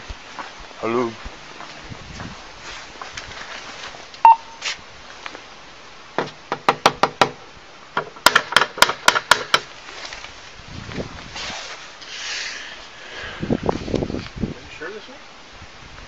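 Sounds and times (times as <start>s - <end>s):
short electronic beep: 4.2s - 4.6s
knocking on door: 6.2s - 7.4s.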